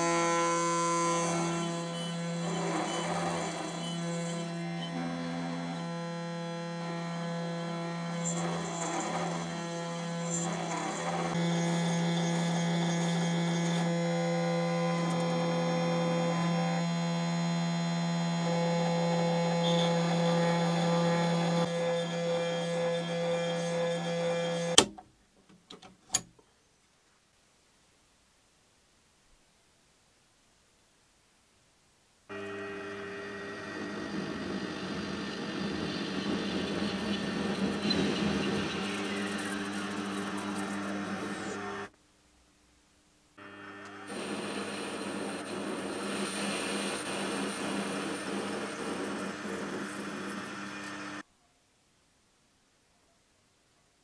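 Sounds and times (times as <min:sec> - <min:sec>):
tool cutting metal bar: 0:00.0 - 0:16.8, 0:18.5 - 0:25.0, 0:32.3 - 0:41.9
motor tones changing pitch: 0:00.0 - 0:24.8, 0:32.3 - 0:41.9, 0:43.4 - 0:51.2
spindle hum: 0:00.0 - 0:24.8, 0:32.3 - 0:41.9, 0:43.4 - 0:51.2.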